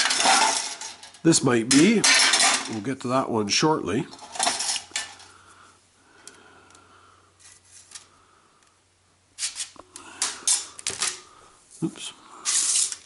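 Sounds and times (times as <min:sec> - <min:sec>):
metal clinks and rattles: 0:00.0 - 0:02.8.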